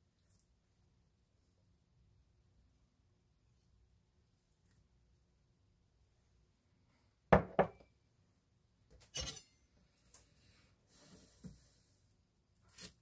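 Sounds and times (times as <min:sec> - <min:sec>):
knocks on cutting board: 0:07.4 - 0:07.8.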